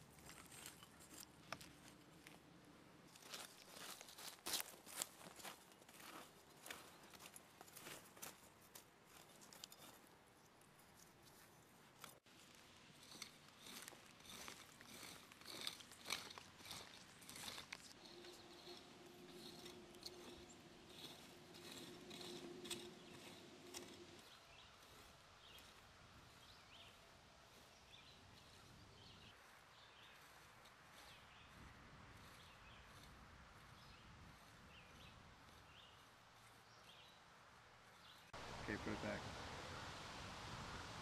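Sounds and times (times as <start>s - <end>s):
low hum: 17.9s - 24.4s.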